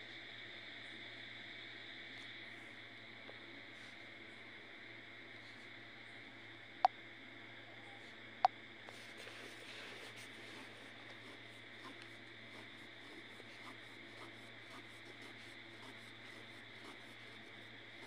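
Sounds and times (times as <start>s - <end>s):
pen scratching on paper: 9.2s - 18.0s.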